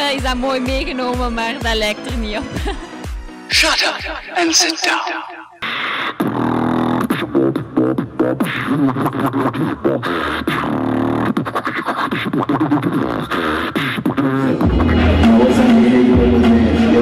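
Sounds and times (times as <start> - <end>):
beatboxing into a microphone: 3.5 - 17.0.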